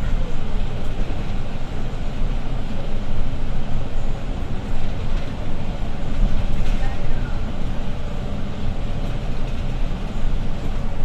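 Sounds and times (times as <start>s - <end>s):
bus diesel engine hum: 0.0s - 11.0s.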